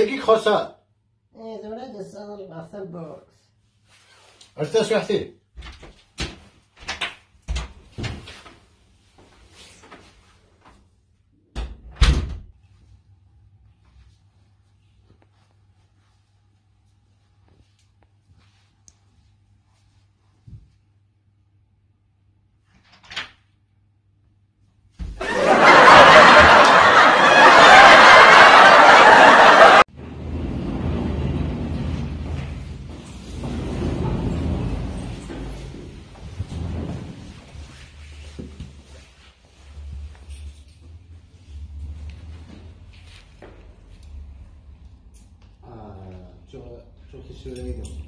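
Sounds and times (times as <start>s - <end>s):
canned crowd laughter: 25.2s - 29.9s
elevator doors knocking and rattling: 29.9s - 37.3s.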